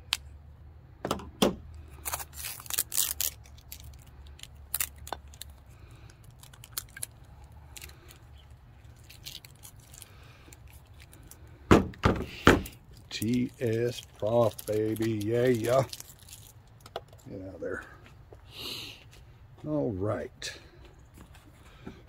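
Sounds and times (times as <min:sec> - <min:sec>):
packing tape tearing: 0:01.9 - 0:11.4, 0:12.3 - 0:16.6.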